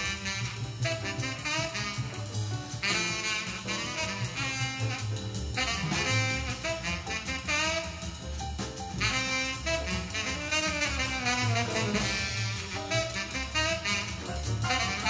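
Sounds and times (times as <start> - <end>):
low bass notes: 0.0 - 15.0
steady cymbal beat: 0.0 - 15.0
saxophone melody: 2.8 - 8.0, 9.0 - 15.0.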